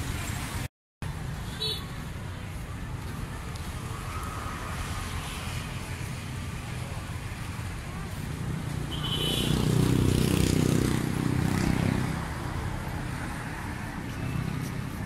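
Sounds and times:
motor vehicle passing: 3.8s - 15.0s.

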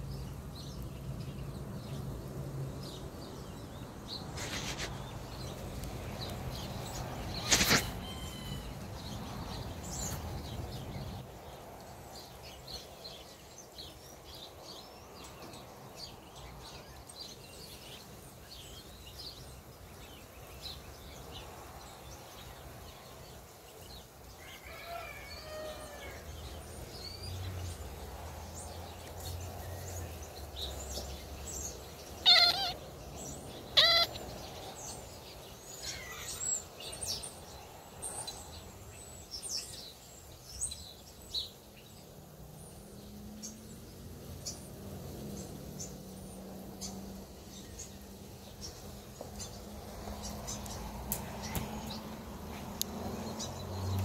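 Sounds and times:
small birds chirping: 0.0s - 54.0s
cat chirping: 32.2s - 32.8s, 33.8s - 34.2s.

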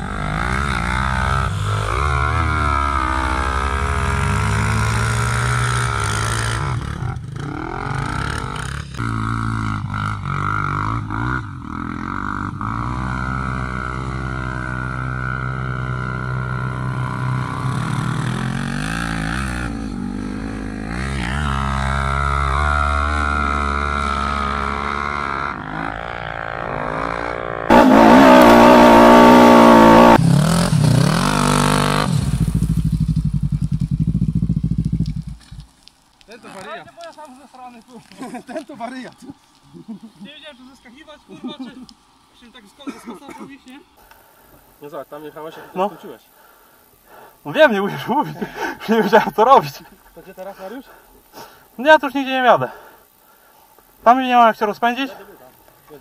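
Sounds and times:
atv engine revving: 0.0s - 35.6s
closer engine running loudly: 27.5s - 32.1s.

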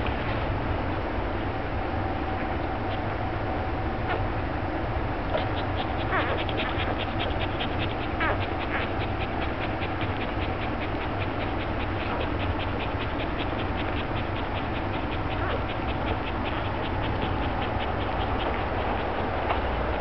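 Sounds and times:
puppies suckling wet clicks: 5.3s - 20.0s
puppy squeaks: 5.3s - 20.0s.

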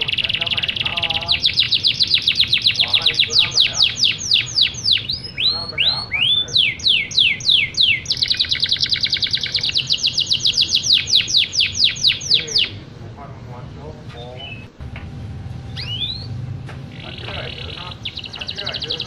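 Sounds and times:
canary singing trills: 0.0s - 12.9s, 13.8s - 14.8s, 15.6s - 19.0s.

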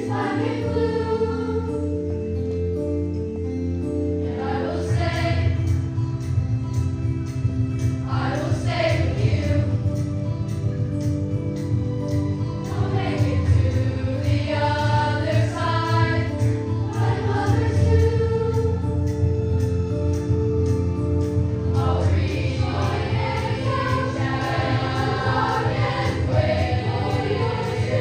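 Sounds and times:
choir singing in harmony: 0.0s - 2.2s, 4.2s - 6.4s, 7.8s - 10.1s, 12.6s - 19.7s, 21.4s - 28.0s.

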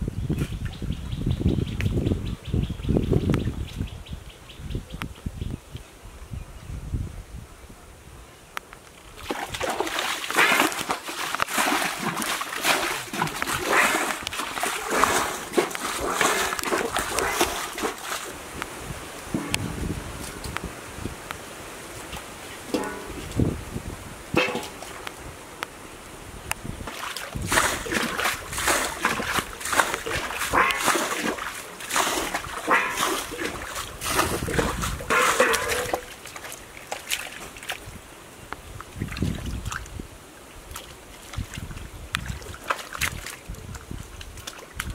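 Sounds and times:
muddy water splashing: 8.9s - 25.4s, 26.7s - 44.9s.

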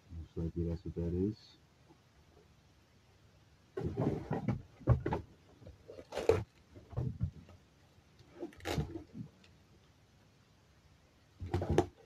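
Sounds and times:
plastic toy car handled: 11.4s - 12.0s.

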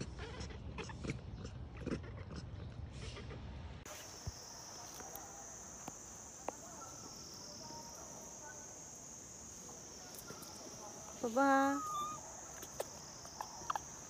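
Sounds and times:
insects singing drone: 3.9s - 14.0s.

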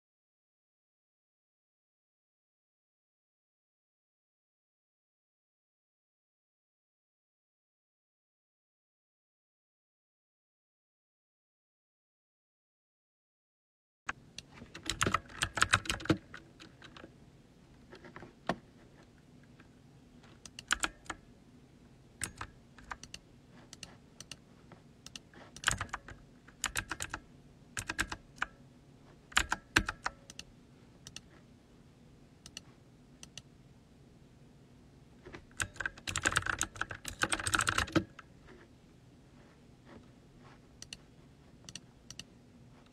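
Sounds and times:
typing on computer keyboard: 14.7s - 17.1s, 20.5s - 21.2s, 22.2s - 23.2s, 25.1s - 27.2s, 27.8s - 28.6s, 29.3s - 30.5s, 35.5s - 38.3s.

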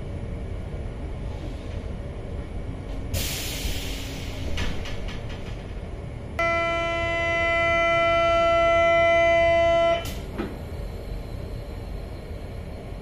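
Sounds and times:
low train rumble: 0.0s - 13.0s
brief air hiss: 3.2s - 4.5s
door-closing warning buzzer: 6.4s - 10.2s.

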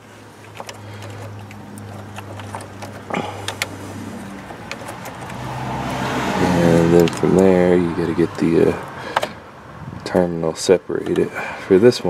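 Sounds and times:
metal clicks and taps: 0.4s - 5.4s.

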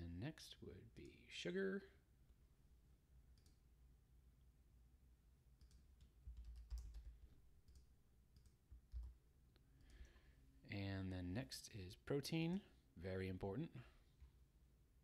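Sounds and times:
keyboard typing: 5.6s - 9.2s.

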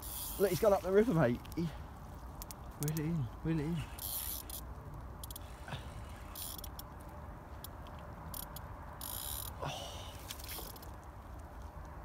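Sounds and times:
fishing reel clicks: 0.0s - 0.5s, 4.0s - 5.6s, 6.2s - 6.9s, 7.6s - 9.6s
fishing reel drag buzzing: 0.0s - 0.6s, 3.9s - 4.6s, 5.2s - 6.8s, 8.3s - 9.6s.

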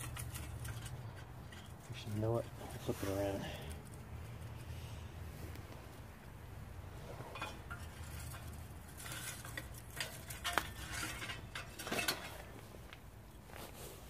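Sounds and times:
fuel clinking into metal stove: 0.0s - 3.9s, 7.2s - 12.6s.

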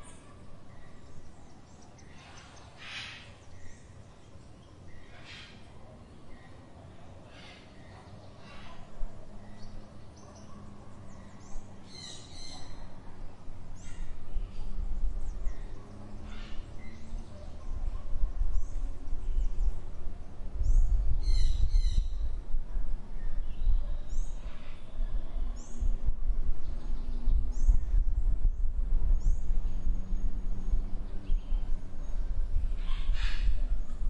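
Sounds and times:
small birds chirping: 0.0s - 34.0s
low rumble: 18.2s - 34.0s.

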